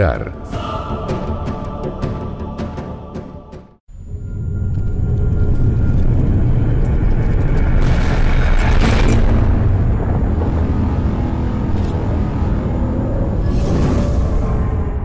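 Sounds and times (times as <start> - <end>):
deep cinematic rumble: 4.0 - 15.0.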